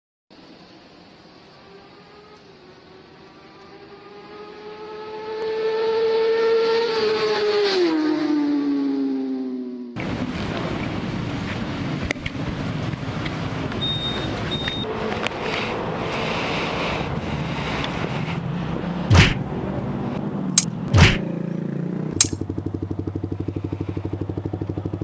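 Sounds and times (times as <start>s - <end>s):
wind and road noise: 0.3s - 25.0s
sharp thumps: 19.1s - 19.4s, 20.6s - 21.3s, 22.2s - 22.4s
motorcycle engine running: 20.6s - 25.0s.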